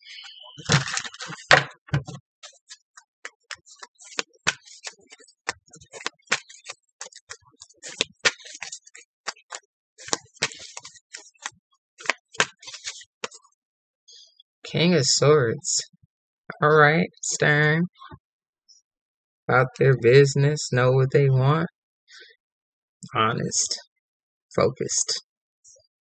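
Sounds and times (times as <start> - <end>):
cards being shuffled: 0.6 - 13.4.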